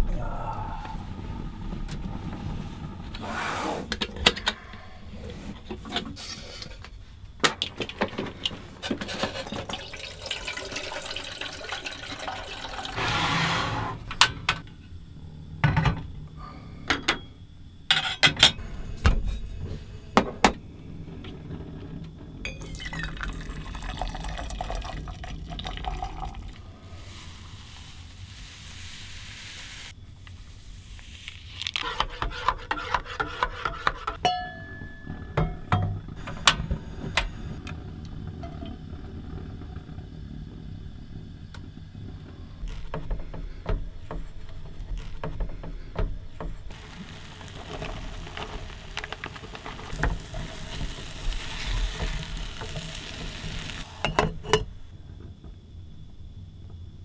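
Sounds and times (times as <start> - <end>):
liquid pouring into container: 9.4 - 13.1, 22.6 - 27.7.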